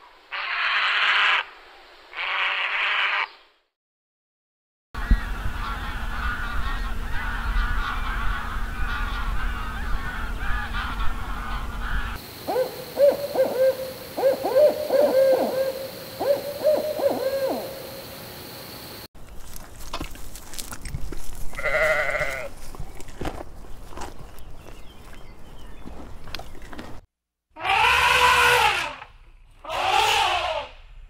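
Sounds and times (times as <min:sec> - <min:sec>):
owl hooting: 0:09.5 - 0:18.2, 0:29.6 - 0:30.8
birds chattering: 0:21.6 - 0:26.8.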